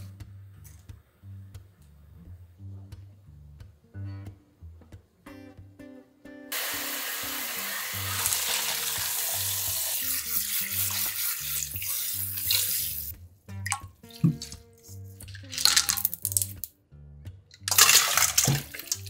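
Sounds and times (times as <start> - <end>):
tap water running into colander: 6.5 - 13.1, 17.7 - 19.0.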